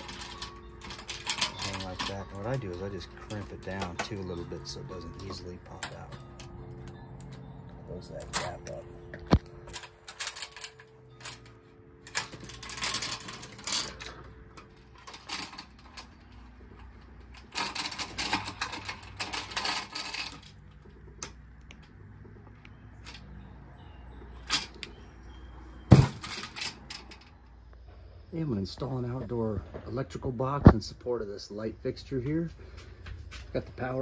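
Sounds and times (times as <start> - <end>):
chain clicking against sheet metal: 0.0 - 4.4, 9.7 - 21.4, 25.9 - 27.4.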